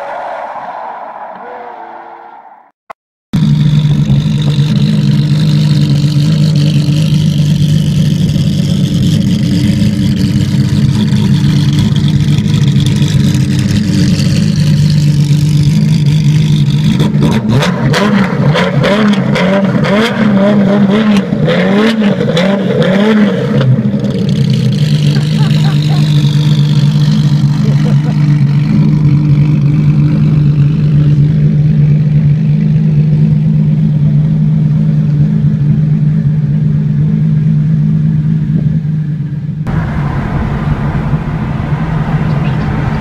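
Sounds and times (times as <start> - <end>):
sports car engine idling: 3.4 - 17.6, 23.8 - 43.0.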